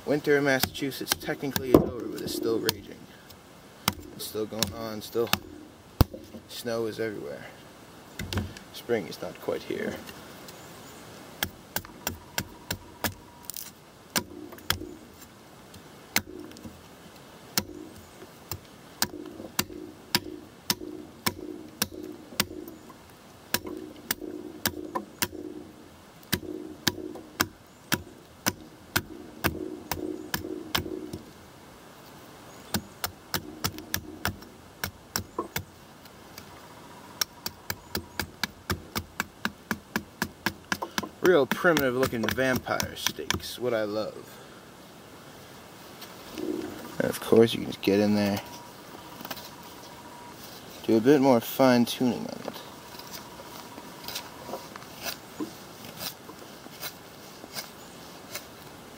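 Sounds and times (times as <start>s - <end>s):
blade chopping wood: 0.5s - 2.9s, 3.8s - 6.4s, 11.4s - 15.0s, 16.1s - 16.8s, 17.6s - 22.8s, 23.5s - 25.6s, 26.2s - 31.3s, 32.7s - 35.7s, 37.2s - 43.5s.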